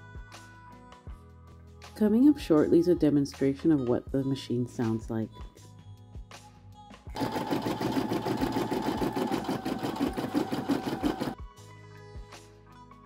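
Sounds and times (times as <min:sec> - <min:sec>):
embroidery machine stitching: 0:07.2 - 0:11.4.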